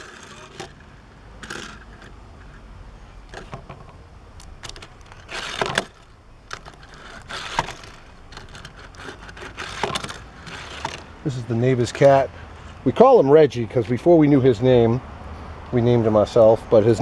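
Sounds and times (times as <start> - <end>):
toy cars scraping on plastic track: 0.0 - 0.8, 1.4 - 2.6, 4.8 - 11.1.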